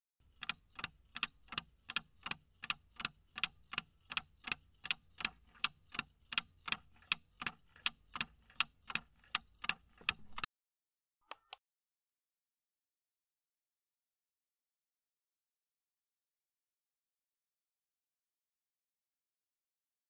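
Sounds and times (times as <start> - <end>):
clock ticking: 0.2 - 10.5.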